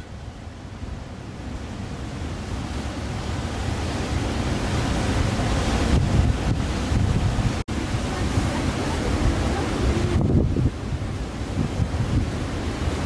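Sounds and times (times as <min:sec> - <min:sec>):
breaking surf: 0:00.0 - 0:13.0
strong wind buffeting microphone: 0:00.0 - 0:13.0.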